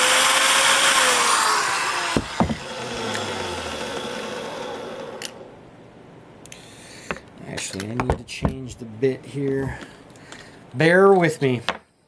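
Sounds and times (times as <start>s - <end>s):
electric drill running: 0.0s - 5.5s
drill knocks being handled: 2.1s - 2.7s.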